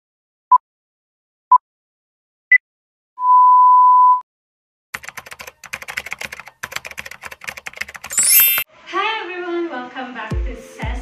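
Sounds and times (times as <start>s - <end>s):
keyboard typing clicks: 5.0s - 8.6s.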